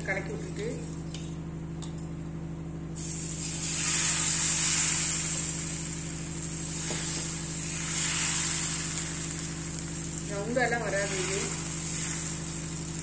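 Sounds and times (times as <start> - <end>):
batter sizzling on a griddle: 2.9 - 13.0.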